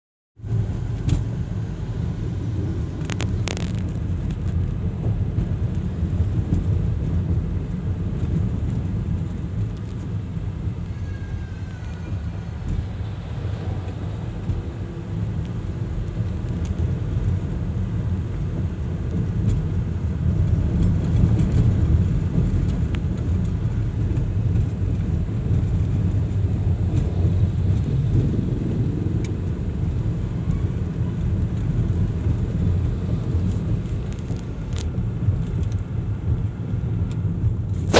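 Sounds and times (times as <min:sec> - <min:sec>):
car engine and road rumble: 0:00.4 - 0:37.9.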